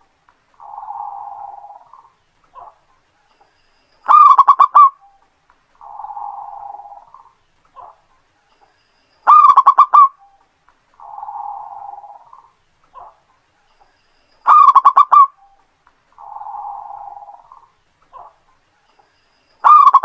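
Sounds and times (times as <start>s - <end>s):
dove cooing song: 0.6s - 2.9s, 4.1s - 5.2s, 5.8s - 8.0s, 9.3s - 10.4s, 11.0s - 13.2s, 14.4s - 15.6s, 16.2s - 18.4s, 19.6s - 20.0s.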